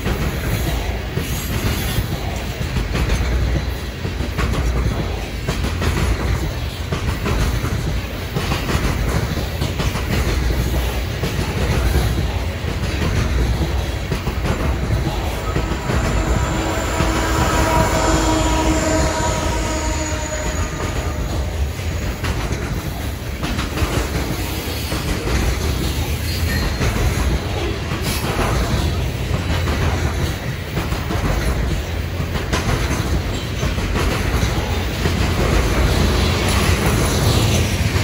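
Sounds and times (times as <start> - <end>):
steel wheels rumbling on rail: 0.0 - 38.0
locomotive tones: 2.8 - 27.5.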